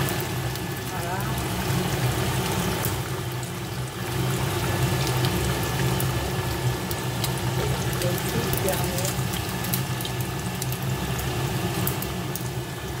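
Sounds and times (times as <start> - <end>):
hot oil bubbling and crackling: 0.0 - 13.0.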